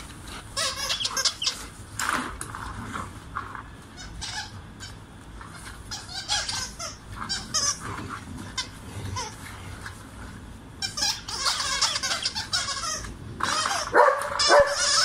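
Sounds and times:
squeaky dog toy squeaking: 0:00.6 - 0:01.6, 0:04.0 - 0:05.0, 0:05.9 - 0:07.8, 0:10.8 - 0:15.0.

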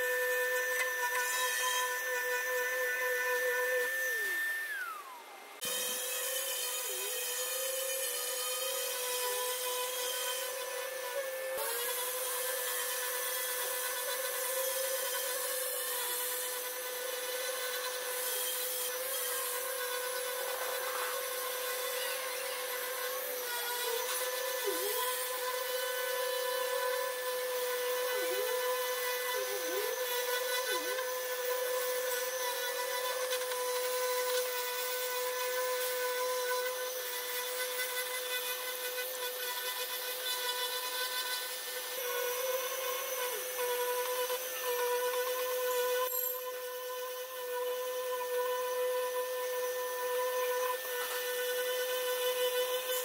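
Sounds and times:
orbital sander motor whine: 0:00.0 - 0:53.0.

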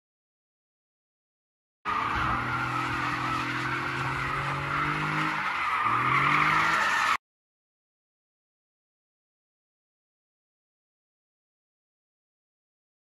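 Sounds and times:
car engine revving: 0:01.9 - 0:07.2
tyres squealing: 0:01.9 - 0:07.2.

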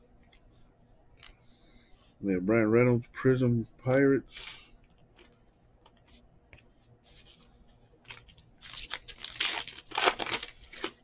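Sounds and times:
foil wrapper crinkling and tearing: 0:08.0 - 0:11.0.

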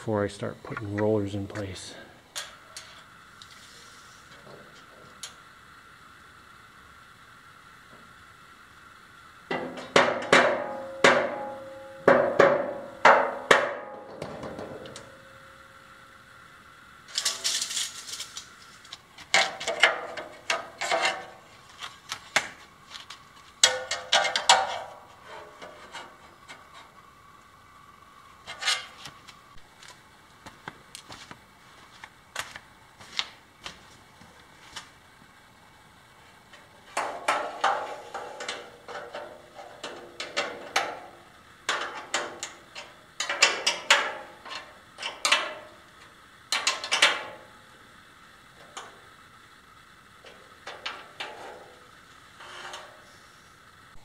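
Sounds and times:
metal ringing tone: 0:10.6 - 0:12.2.

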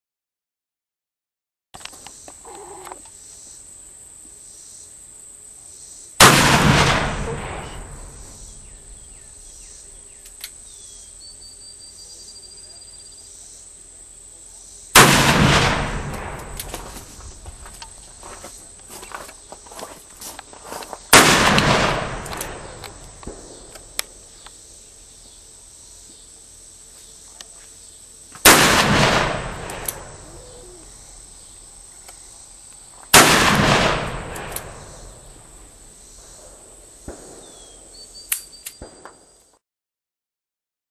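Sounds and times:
gunshots with long echo: 0:06.2 - 0:09.8, 0:15.0 - 0:17.7, 0:21.1 - 0:24.3, 0:28.4 - 0:31.3, 0:33.1 - 0:37.9.

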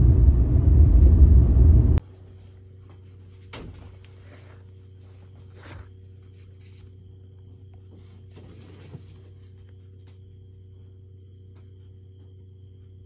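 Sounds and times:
low background hum: 0:00.0 - 0:13.0
soft rustle: 0:02.1 - 0:07.0.

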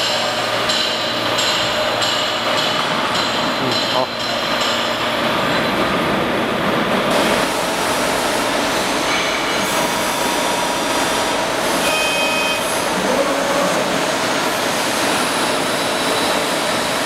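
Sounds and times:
machinery running: 0:00.0 - 0:17.0
brief high whines: 0:11.7 - 0:12.9.

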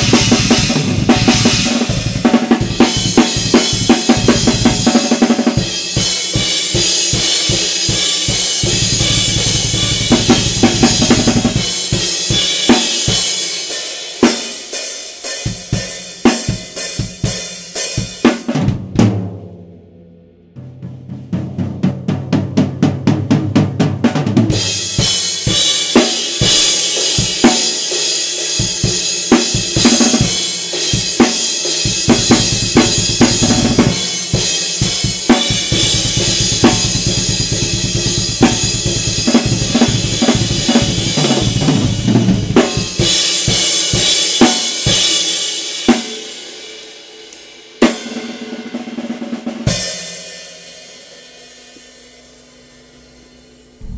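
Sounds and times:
rapid bass drum strokes: 0:00.0 - 0:14.5, 0:28.5 - 0:45.3
snare drum: 0:07.5 - 0:11.6, 0:32.0 - 0:34.0, 0:35.1 - 0:41.9.

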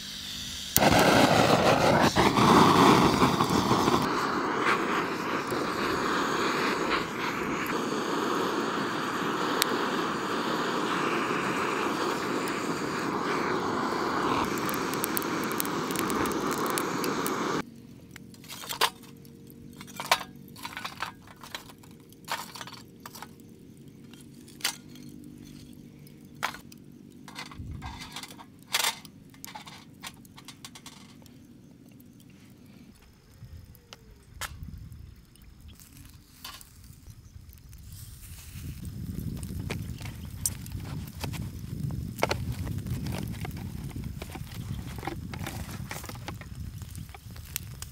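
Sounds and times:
gas torch hissing: 0:00.0 - 0:17.7, 0:27.6 - 0:47.9.

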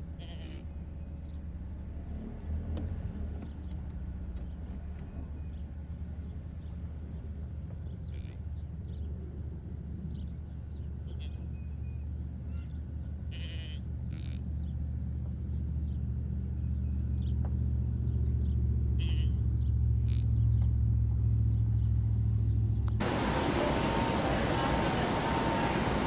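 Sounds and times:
vehicle engine humming: 0:19.5 - 0:26.0
loud even hiss: 0:23.0 - 0:26.0
short high calls: 0:23.0 - 0:26.0.

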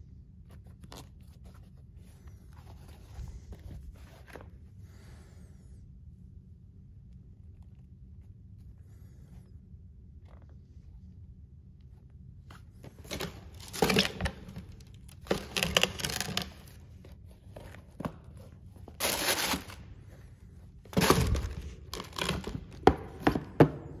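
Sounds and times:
tissue paper crinkling: 0:18.9 - 0:19.9.

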